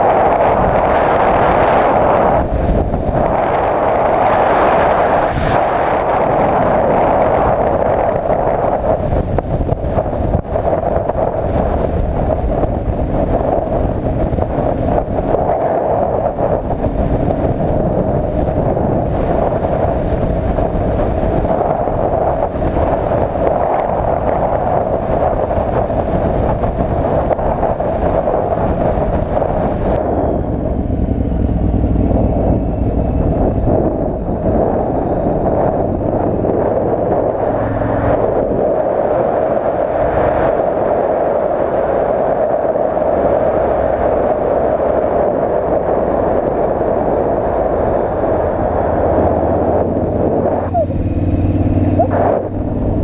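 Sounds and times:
wind noise on microphone: 0.0s - 53.0s
motorcycle engine running: 8.9s - 38.8s, 48.4s - 53.0s.

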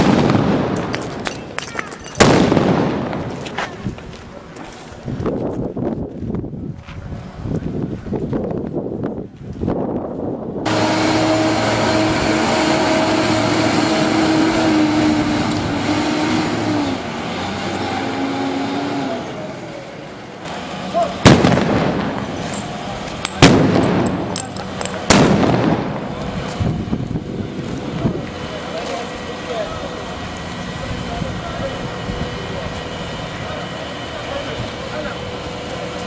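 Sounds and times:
loud sharp bangs: 0.0s - 3.6s, 20.4s - 27.0s
heavy vehicle engine running: 0.0s - 36.0s.

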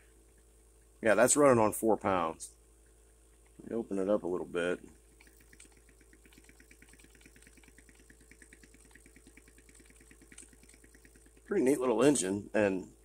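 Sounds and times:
model engine puffs and clicks: 0.0s - 13.0s
steady low hum: 0.0s - 13.0s.

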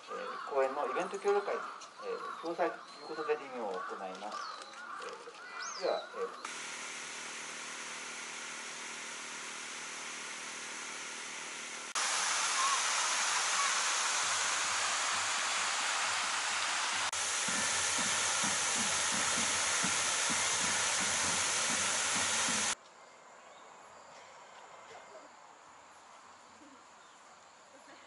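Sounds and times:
open-air ambience: 0.0s - 28.0s
fountain water splashing: 6.5s - 22.8s.

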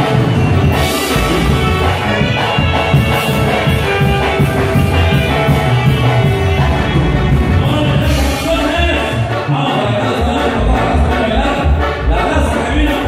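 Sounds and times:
steady drum beat: 0.0s - 9.3s
live band playing: 0.0s - 13.0s.

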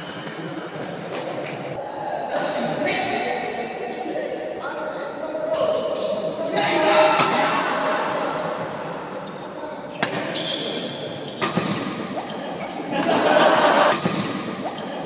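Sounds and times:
chatter of spectators: 0.0s - 15.0s
rackets striking shuttlecock: 10.0s - 10.4s, 11.3s - 15.0s.

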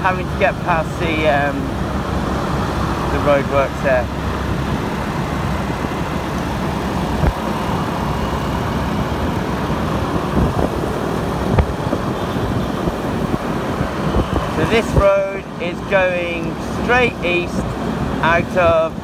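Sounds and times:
scooter engine and road noise: 0.0s - 19.0s.

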